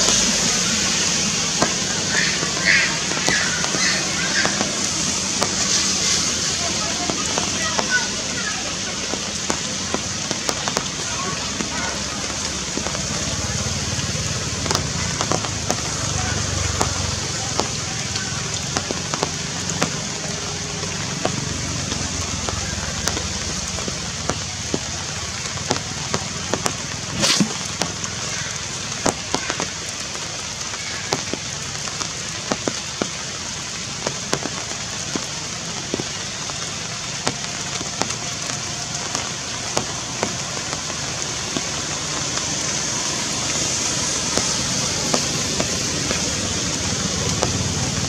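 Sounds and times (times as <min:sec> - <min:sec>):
sharp ticks and crackles: 0:07.0 - 0:33.2.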